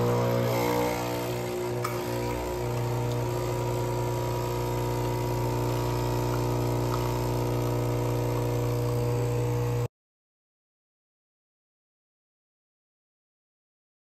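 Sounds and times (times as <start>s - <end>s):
coffee streaming into cup: 0.0s - 9.9s
espresso machine pump humming: 0.0s - 9.9s.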